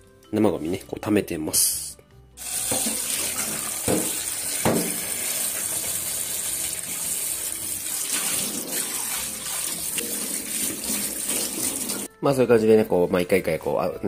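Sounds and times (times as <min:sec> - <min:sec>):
tap water running into sink: 0:02.4 - 0:12.1.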